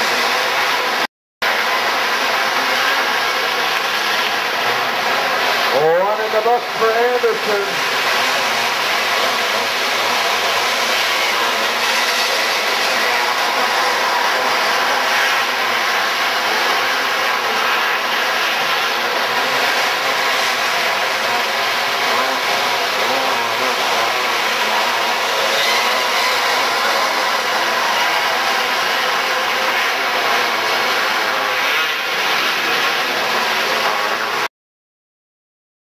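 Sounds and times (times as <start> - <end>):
kart engines racing: 0.0 - 34.5.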